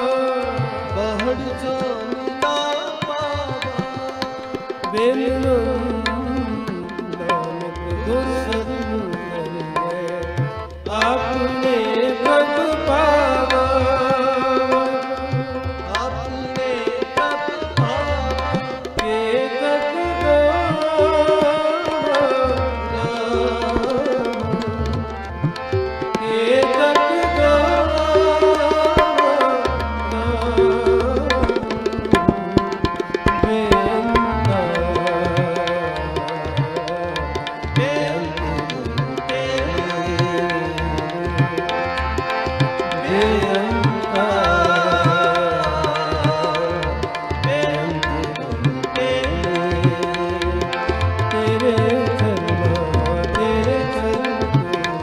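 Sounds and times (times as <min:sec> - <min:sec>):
harmonium: 0:00.0 - 0:55.0
tabla strokes: 0:20.6 - 0:55.0.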